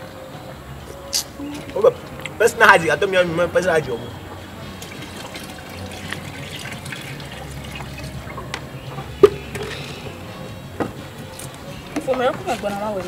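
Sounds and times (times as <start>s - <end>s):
liquid pouring into metal pot: 4.7s - 8.5s.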